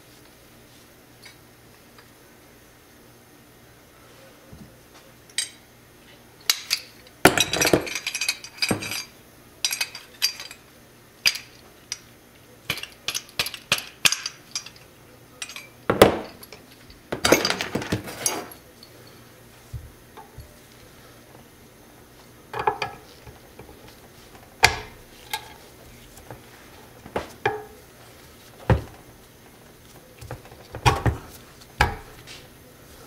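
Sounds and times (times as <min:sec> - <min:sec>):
metal parts and tools clinking: 0:06.4 - 0:10.6, 0:12.7 - 0:19.2.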